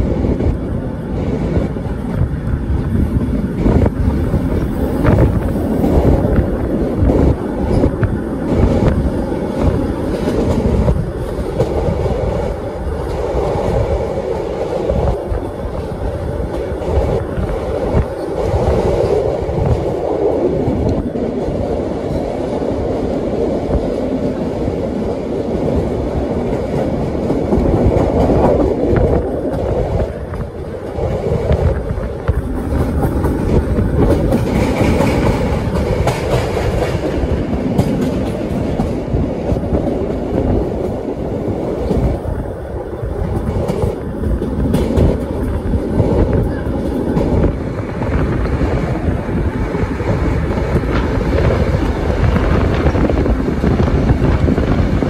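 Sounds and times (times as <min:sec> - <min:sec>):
train rumbling on rails: 0:00.0 - 0:55.0
wheels clicking over rail joints: 0:25.8 - 0:47.6.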